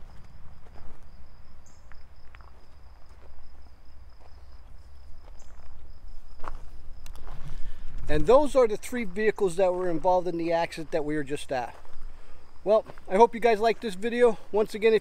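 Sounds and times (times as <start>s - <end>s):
footsteps crunching on gravel: 0.0s - 15.0s.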